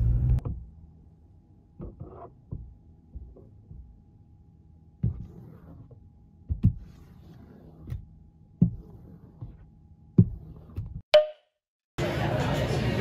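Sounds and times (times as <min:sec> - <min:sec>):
squeegee wiping glass: 0:05.0 - 0:08.0.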